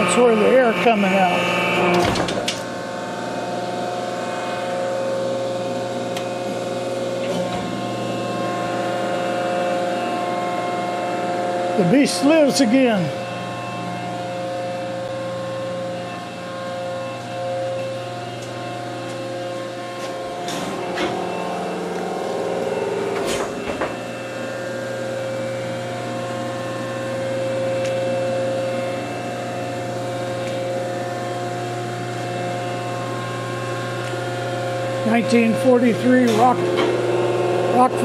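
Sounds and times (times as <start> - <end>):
milling machine hum and whine: 0.0 - 38.0.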